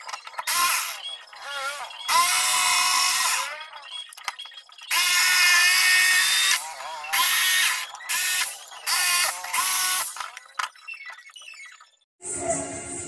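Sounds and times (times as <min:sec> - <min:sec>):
jigsaw cutting plywood: 0:00.5 - 0:03.8, 0:04.9 - 0:10.2.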